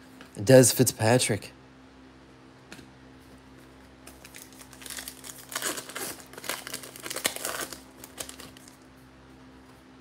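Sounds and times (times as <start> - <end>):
foil wrapper crinkling and tearing: 4.1 - 8.8.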